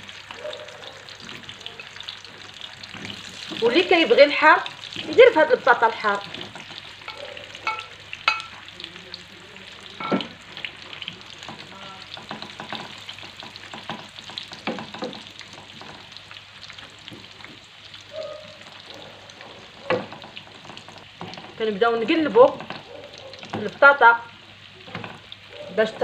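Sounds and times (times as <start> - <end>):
potatoes sizzling in oil: 0.0 - 26.0
spatula knocking and scraping pan: 4.9 - 8.6, 10.0 - 10.4, 11.4 - 16.1, 19.6 - 23.8, 24.8 - 26.0.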